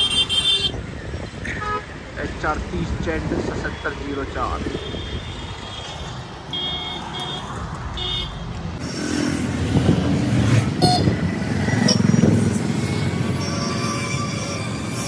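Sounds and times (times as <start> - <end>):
car engines passing: 0.7 - 15.0
motorcycle engines passing: 4.6 - 13.5.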